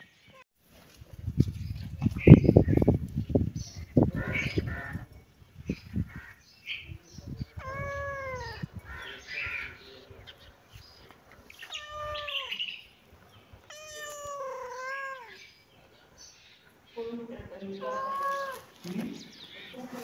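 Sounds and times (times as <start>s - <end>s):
cat meowing: 7.5s - 8.7s, 11.6s - 12.7s, 13.6s - 15.5s, 17.8s - 18.8s.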